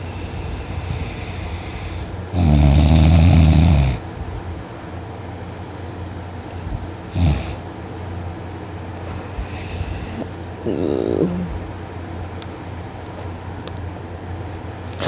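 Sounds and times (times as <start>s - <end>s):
quiet breathing: 0.0s - 2.2s.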